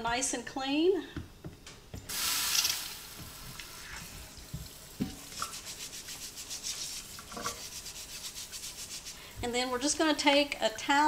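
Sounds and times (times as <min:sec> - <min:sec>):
brush scrubbing potato: 0:05.2 - 0:11.0.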